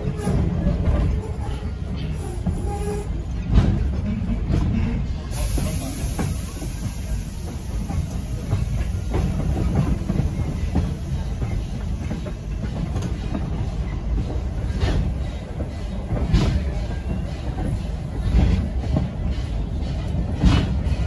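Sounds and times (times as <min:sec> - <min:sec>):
train rumbling along rails: 0:00.0 - 0:21.0.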